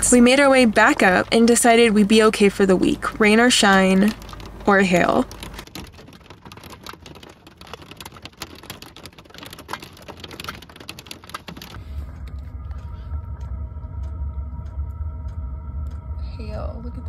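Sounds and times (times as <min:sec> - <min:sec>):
steady low hum: 0:00.0 - 0:06.2, 0:11.0 - 0:17.0
hailstones striking a van roof: 0:00.0 - 0:12.9.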